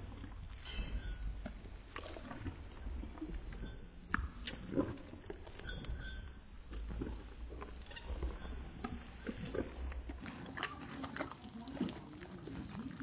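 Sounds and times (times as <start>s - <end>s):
horse chewing and crunching: 0.0s - 13.0s.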